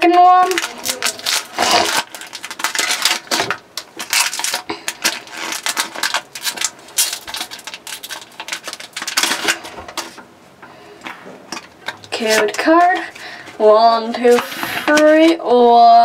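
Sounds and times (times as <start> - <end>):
foil wrapper crinkling and tearing: 0.0 - 10.2, 11.5 - 13.5.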